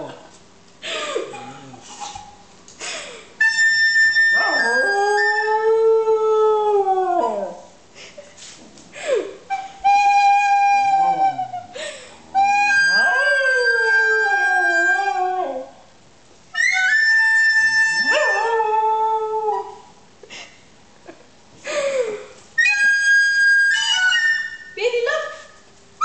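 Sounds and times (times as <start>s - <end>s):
dog howling: 4.1s - 7.7s, 12.3s - 15.8s, 16.6s - 19.8s.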